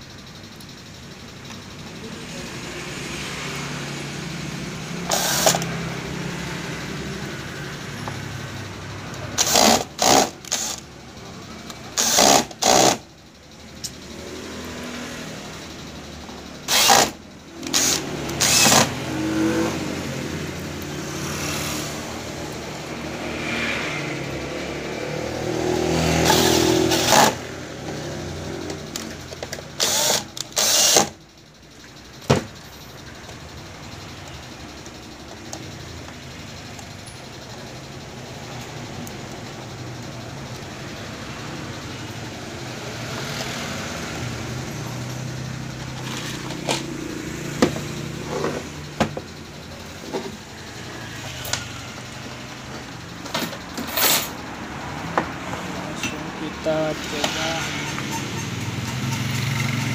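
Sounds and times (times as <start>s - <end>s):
low engine-like hum: 0.0s - 9.6s, 13.0s - 59.9s
cordless drill driving screws: 5.1s - 5.8s, 9.4s - 10.8s, 12.0s - 13.0s, 16.7s - 19.0s, 26.2s - 27.4s, 29.8s - 31.2s.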